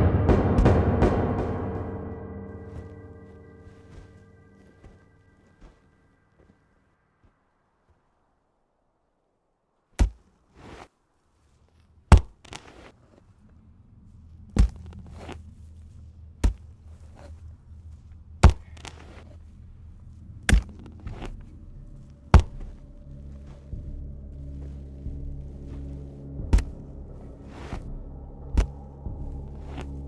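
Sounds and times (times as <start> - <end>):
low drone: 0.0 - 9.6, 13.1 - 30.0
pick striking hard ground: 14.5 - 15.4, 16.4 - 17.4, 18.0 - 19.4, 22.3 - 22.8, 25.6 - 26.8.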